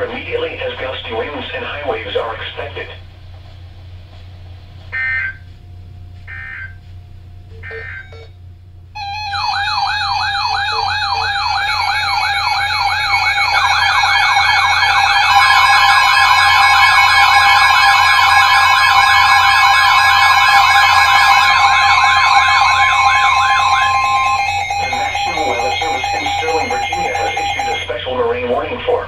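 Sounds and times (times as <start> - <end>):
warbling electronic sirens: 0.0 - 3.0, 4.9 - 5.5, 6.3 - 6.8, 7.6 - 8.4, 9.0 - 29.0
steady warning tone: 0.0 - 3.1, 4.8 - 29.0
data tone bursts: 9.0 - 28.0
steady beeping tones: 9.0 - 29.0.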